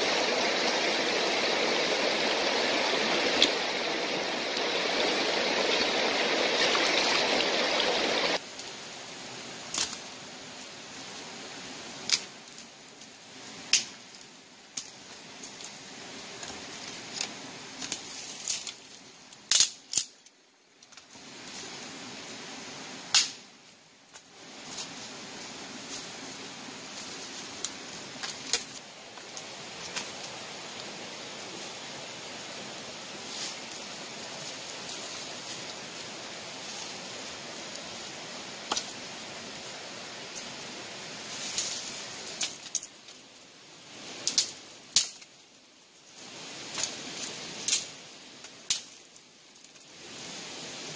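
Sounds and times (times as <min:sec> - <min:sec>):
fast-flowing river rushing: 0:00.0 - 0:08.4
sticks snapping: 0:09.7 - 0:10.0, 0:19.4 - 0:21.0, 0:23.1 - 0:23.4, 0:44.2 - 0:45.3.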